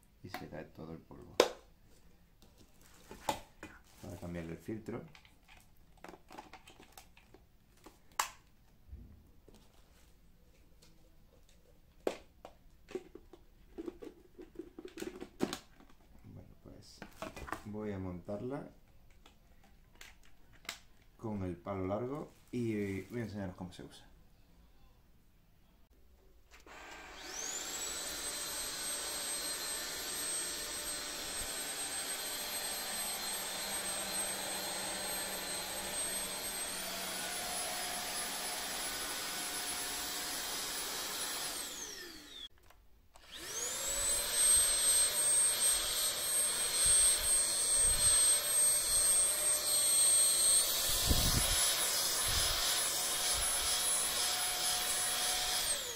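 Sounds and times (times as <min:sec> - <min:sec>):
vacuum motor whining: 0:26.6 - 0:42.5, 0:43.2 - 0:55.9.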